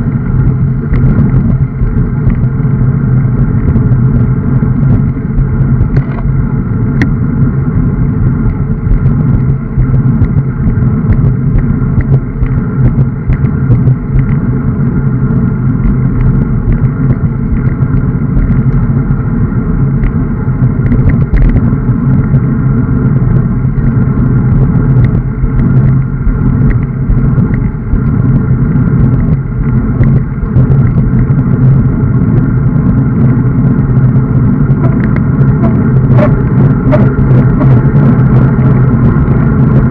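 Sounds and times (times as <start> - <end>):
bicycle tyre rumble on asphalt: 0.0 - 39.9
wind rushing on microphone: 0.0 - 39.9.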